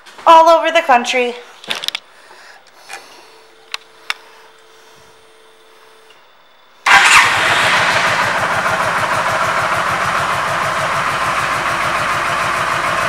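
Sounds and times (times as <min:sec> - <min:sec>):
faint steady hum: 0:00.0 - 0:06.9
motorcycle engine starting and idling: 0:06.8 - 0:13.0.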